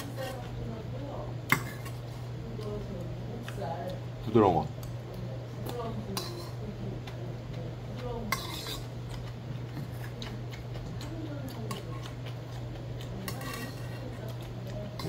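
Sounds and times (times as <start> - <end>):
steady low hum: 0.0 - 15.0
metal spoon scraping steel bowl: 8.3 - 8.9, 13.2 - 14.1.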